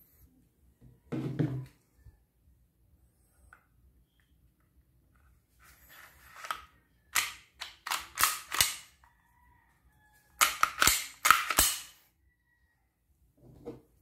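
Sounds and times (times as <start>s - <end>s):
pistol slide and trigger clicks: 6.4s - 9.0s, 10.4s - 12.0s.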